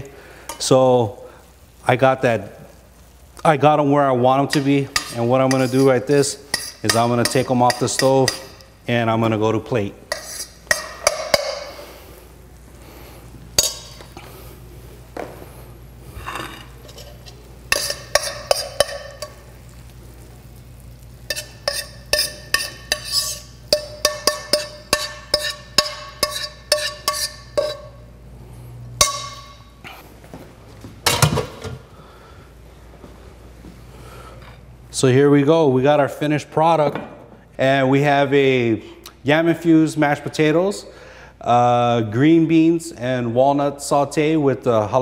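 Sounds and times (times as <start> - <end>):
metal spoon clinking on pan: 6.5 - 8.7, 10.1 - 11.7, 13.6 - 14.0, 16.8 - 19.4, 21.3 - 28.0, 29.0 - 29.7.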